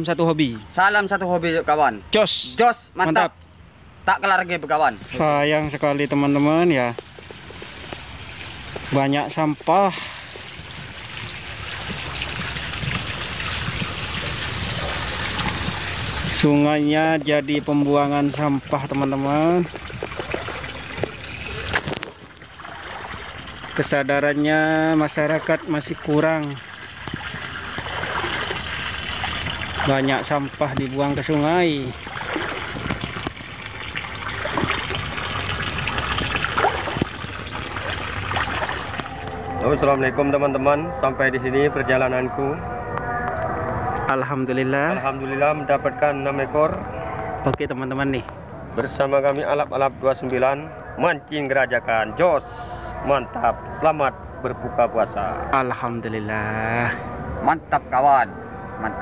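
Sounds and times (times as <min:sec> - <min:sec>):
stream water trickling: 0:04.1 - 0:59.0
small clicks in water flow: 0:06.9 - 0:16.4, 0:18.2 - 0:23.9, 0:25.0 - 0:31.3, 0:32.0 - 0:39.4.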